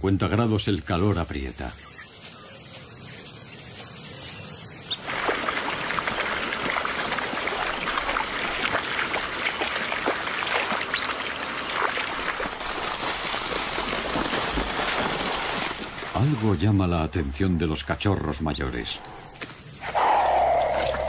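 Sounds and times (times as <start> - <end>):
high insect whine: 0.0 - 21.0
lions lapping water: 4.9 - 16.6.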